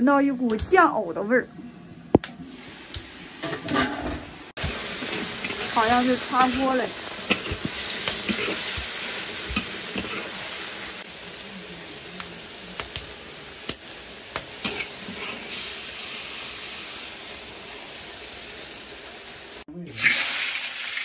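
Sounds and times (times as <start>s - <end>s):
food sizzling in a wok: 0.0s - 21.0s.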